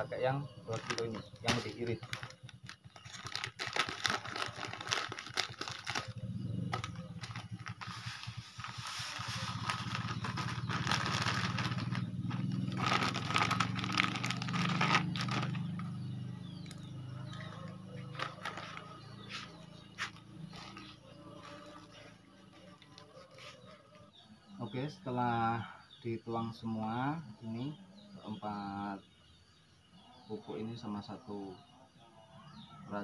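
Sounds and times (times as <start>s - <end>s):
low motor hum: 0.5s - 24.1s
plastic packet rustling: 0.7s - 15.8s, 18.1s - 19.0s
granules pouring: 2.0s - 6.1s, 6.8s - 15.8s.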